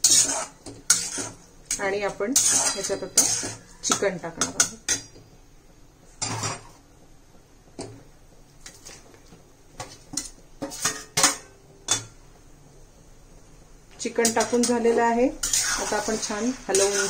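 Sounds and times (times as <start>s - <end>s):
metal utensil scraping steel pan: 0.0s - 5.2s, 10.2s - 12.1s, 14.1s - 17.0s.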